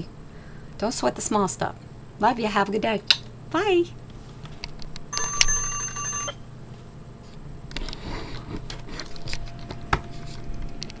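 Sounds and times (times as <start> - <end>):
chime of steady tones: 5.1 - 6.4.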